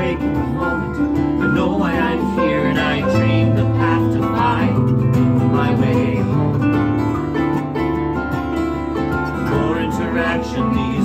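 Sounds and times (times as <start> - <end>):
strummed acoustic guitar: 0.0 - 11.0.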